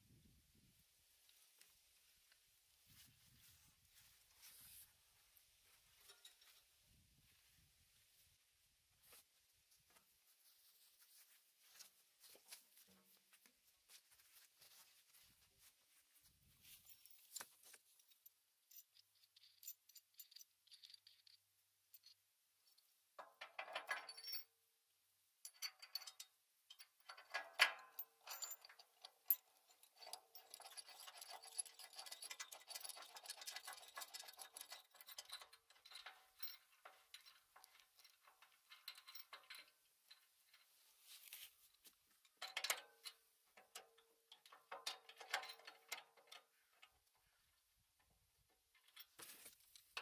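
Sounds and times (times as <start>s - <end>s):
metal clicks and scrapes: 16.8s - 21.4s, 25.5s - 41.5s, 42.2s - 47.3s.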